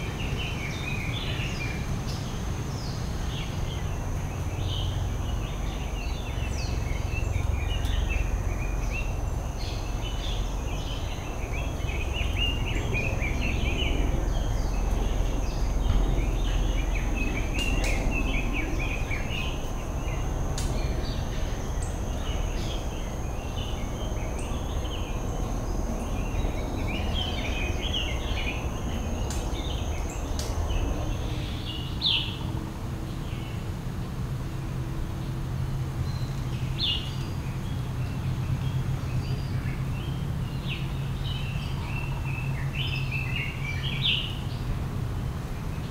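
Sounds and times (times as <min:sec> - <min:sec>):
small birds chirping: 0:00.0 - 0:33.7
steady low rumble: 0:00.0 - 0:45.9.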